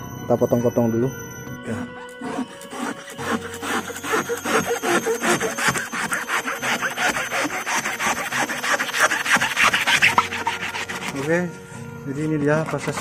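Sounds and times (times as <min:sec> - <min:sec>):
knife sawing through rubber: 0:02.0 - 0:11.5, 0:12.2 - 0:13.0.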